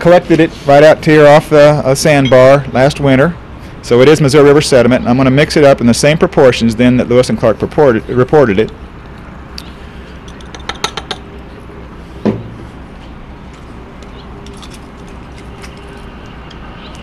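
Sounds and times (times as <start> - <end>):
glass clinking against bottle: 2.2 - 2.4, 10.3 - 11.2.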